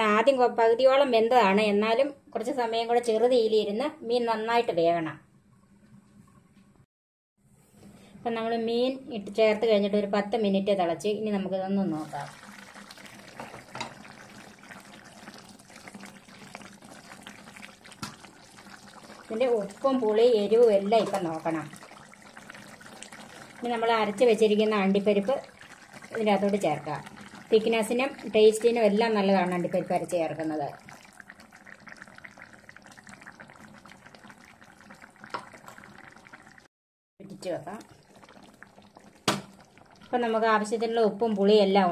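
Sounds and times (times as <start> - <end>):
curry simmering with bubbles popping: 11.3 - 41.8.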